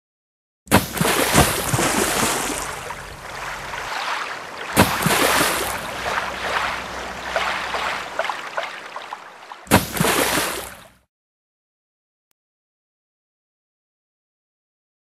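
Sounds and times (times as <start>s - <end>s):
rushing water surges: 0.9s - 10.9s.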